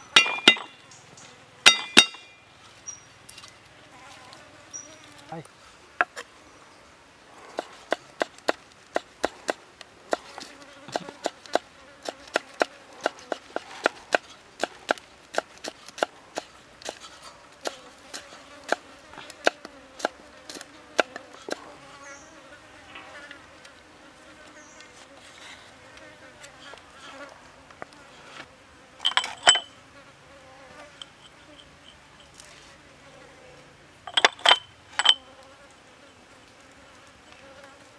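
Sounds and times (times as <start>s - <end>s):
insects buzzing: 0.0s - 37.9s
ceramic cups clinking: 0.1s - 0.8s, 1.7s - 2.4s, 29.0s - 29.7s, 34.1s - 35.2s.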